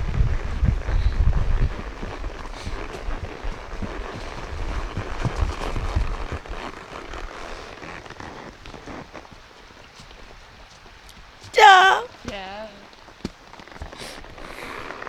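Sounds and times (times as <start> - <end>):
wind on microphone: 0.0 - 7.3
horse hooves on dry leaves: 0.0 - 11.5, 12.1 - 15.0.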